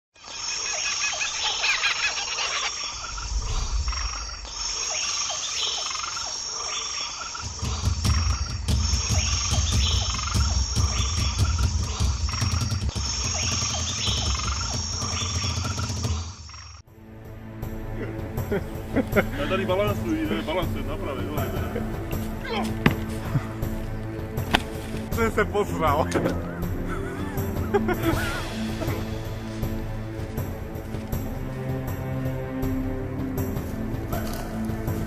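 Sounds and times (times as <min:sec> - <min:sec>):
high insect buzz: 0:00.2 - 0:16.8
frogs croaking: 0:00.2 - 0:16.9
low rumble: 0:03.0 - 0:05.5.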